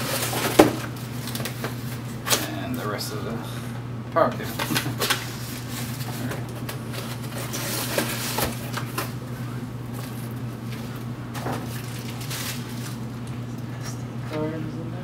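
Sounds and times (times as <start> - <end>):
cardboard and plastic bags rustling: 0.0 - 3.0, 4.5 - 9.2, 9.8 - 13.6.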